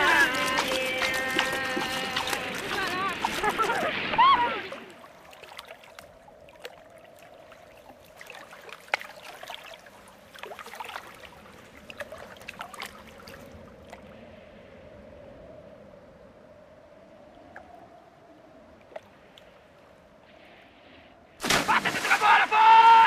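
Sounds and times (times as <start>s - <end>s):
oars knocking: 0.0s - 3.8s
water lapping around boat: 0.0s - 14.1s.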